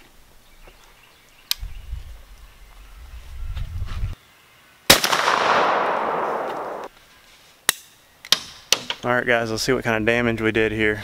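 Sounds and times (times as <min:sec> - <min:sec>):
shotgun shot with echo: 0:04.9 - 0:06.9.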